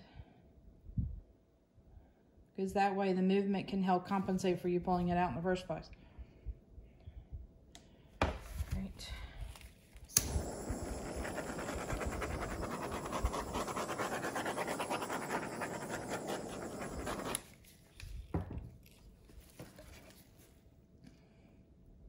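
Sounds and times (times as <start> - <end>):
torch flame hissing: 10.1 - 17.6.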